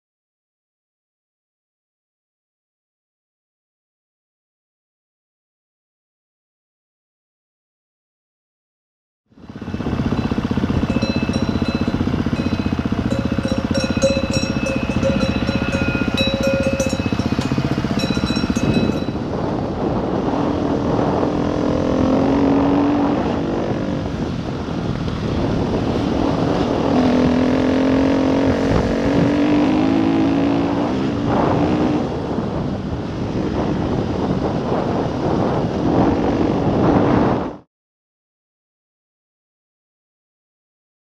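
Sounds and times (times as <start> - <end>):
steady ringing tones: 9.4 - 19.4
motorcycle engine revving: 9.4 - 37.4
wind noise on microphone: 9.4 - 37.7.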